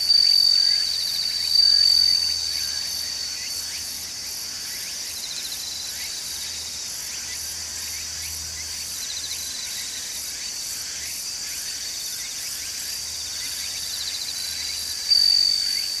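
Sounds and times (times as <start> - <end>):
insect high steady note: 0.0 - 3.9
crickets chirring: 0.0 - 16.0
insect trills: 0.0 - 16.0.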